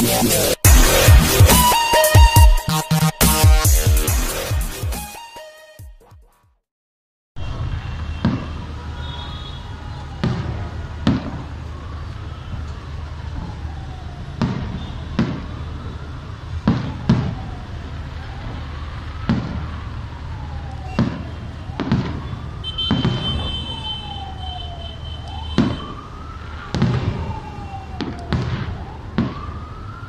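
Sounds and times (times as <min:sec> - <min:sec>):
siren wailing: 0:00.0 - 0:05.7, 0:07.4 - 0:30.0
fireworks bangs: 0:07.4 - 0:11.6, 0:14.3 - 0:17.6, 0:18.4 - 0:19.9, 0:20.8 - 0:29.5.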